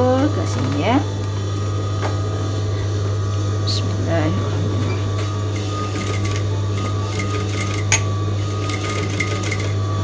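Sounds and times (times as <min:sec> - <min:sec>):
sewing machine stitching: 0:05.6 - 0:07.9, 0:08.5 - 0:09.8.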